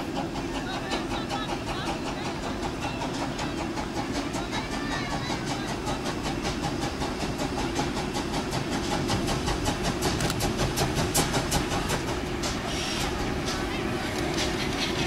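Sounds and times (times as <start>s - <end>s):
steam locomotive chuffing: 0.0s - 15.0s.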